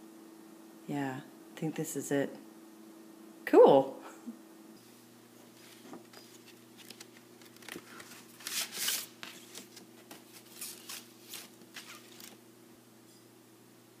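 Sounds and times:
record sliding out of paper sleeve: 5.6 - 12.4.

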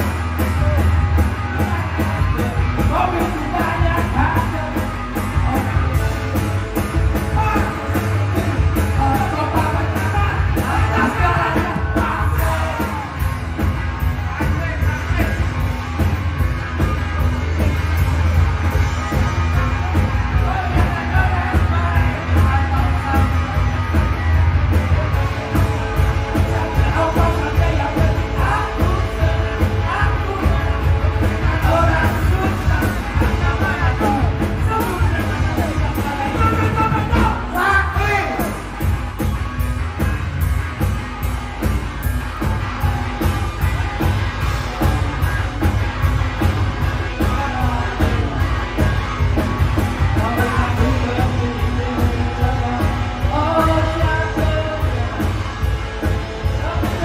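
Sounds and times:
drums: 0.0 - 57.0
electric guitars: 0.0 - 57.0
person singing: 7.2 - 15.5, 19.1 - 38.8, 49.8 - 57.0.

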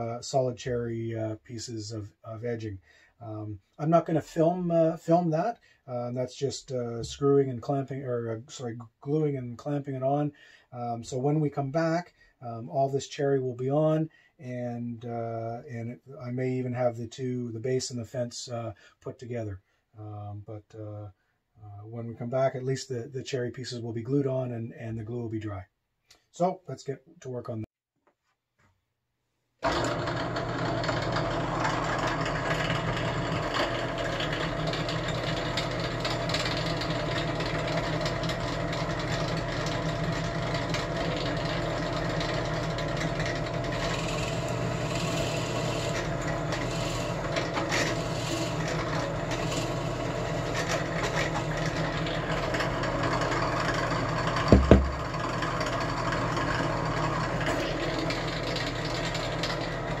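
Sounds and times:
drill bit cutting wood: 29.6 - 60.0
drill press motor running: 29.6 - 60.0
sharp knocks: 54.5 - 55.1.

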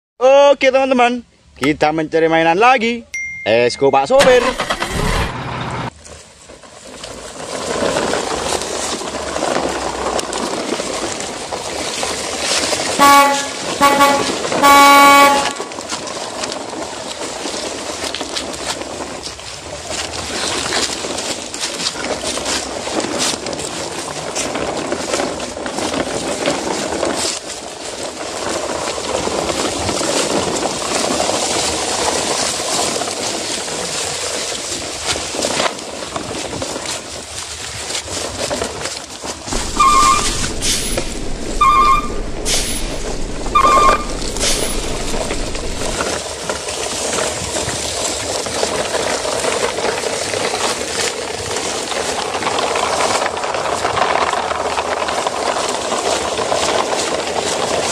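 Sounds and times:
toy trucks rattling over leaves: 5.9 - 57.9
vehicle horn toots: 13.0 - 15.7, 39.6 - 45.2.

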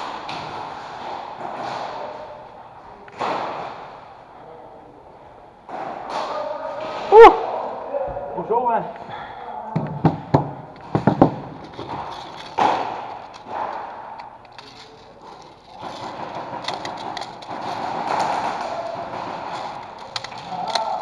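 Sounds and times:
pistols knocking on wooden bench: 9.8 - 11.5.

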